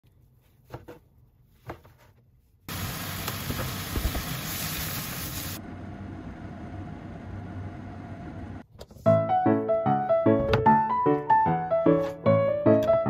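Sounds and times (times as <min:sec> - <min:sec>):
food sizzling in a pan: 0:02.7 - 0:05.6.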